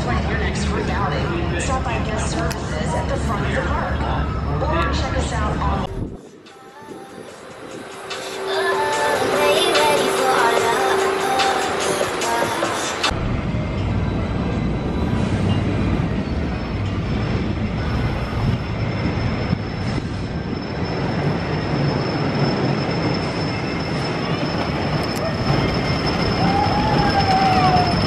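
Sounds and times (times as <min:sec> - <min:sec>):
high-pitched whine: 0:00.0 - 0:28.0
wooden roller coaster rumbling: 0:08.4 - 0:28.0.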